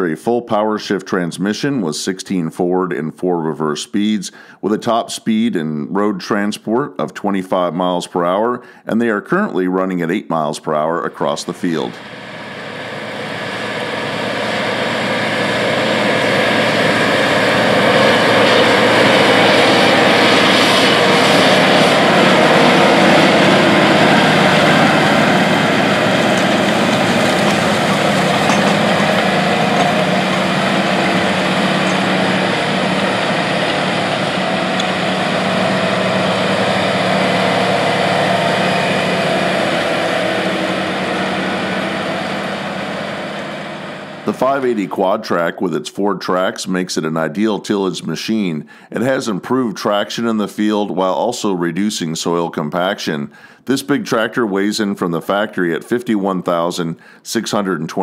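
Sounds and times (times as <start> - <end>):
tractor diesel engine under load: 11.1 - 45.6.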